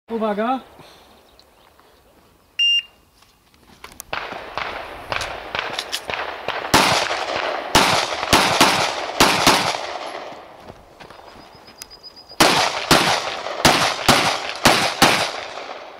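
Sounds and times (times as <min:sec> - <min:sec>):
pistol shots with echo: 0:04.1 - 0:10.4, 0:12.4 - 0:15.9.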